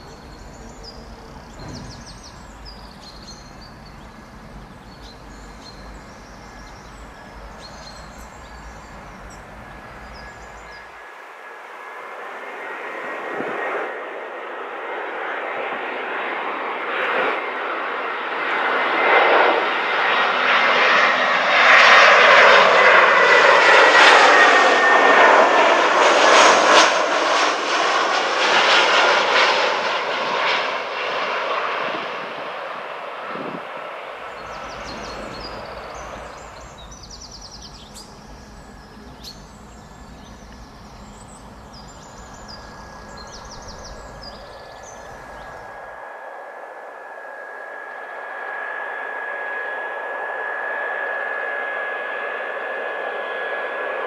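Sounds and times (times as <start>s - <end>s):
birds chirping: 0.0s - 12.8s, 19.7s - 46.2s
jet airliner passing overhead: 0.0s - 54.0s
low steady hum: 34.3s - 48.3s.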